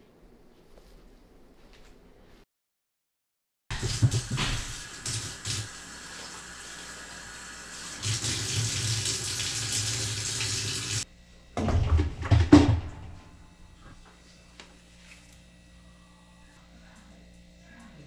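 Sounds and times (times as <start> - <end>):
water running from a tap: 3.7 - 11.1.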